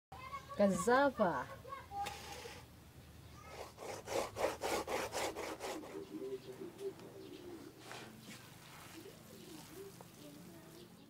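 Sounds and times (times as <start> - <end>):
cassava grating scraping: 3.4 - 6.1.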